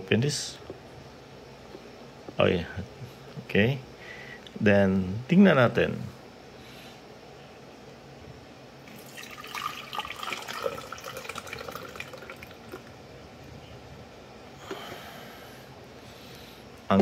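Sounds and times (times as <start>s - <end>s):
water pouring and splashing: 8.9s - 12.9s.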